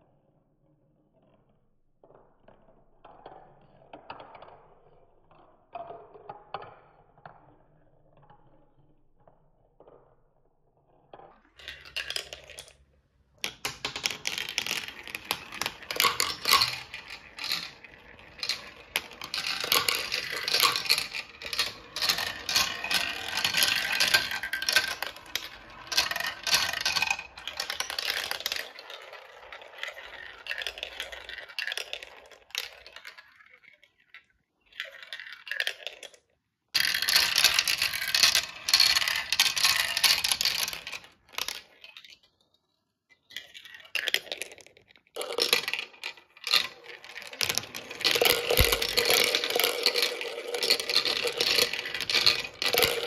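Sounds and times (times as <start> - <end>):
balls clattering down plastic tracks: 11.0 - 53.0.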